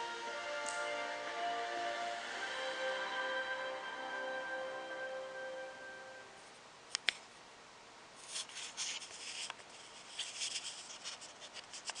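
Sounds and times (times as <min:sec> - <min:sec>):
handling rustling and rubbing: 0:08.2 - 0:12.0.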